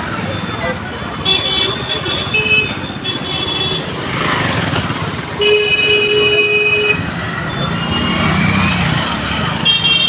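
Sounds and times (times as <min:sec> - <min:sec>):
vehicles in slow traffic: 0:00.0 - 0:10.0
vehicle horn: 0:05.4 - 0:07.0.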